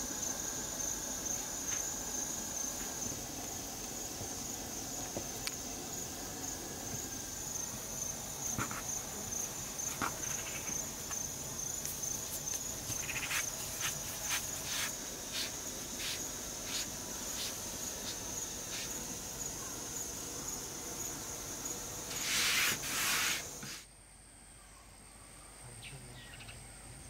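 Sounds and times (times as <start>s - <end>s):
high-pitched insect chirring: 4.4s - 23.6s.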